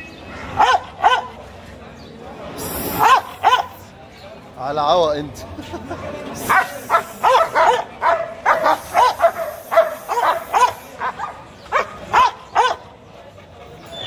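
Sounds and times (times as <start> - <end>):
dog barking: 0.6 - 1.4, 3.0 - 3.8, 6.5 - 12.9.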